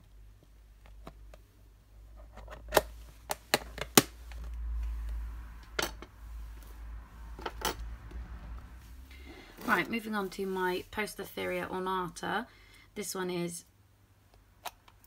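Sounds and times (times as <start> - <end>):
low handling rumble: 4.2 - 11.8.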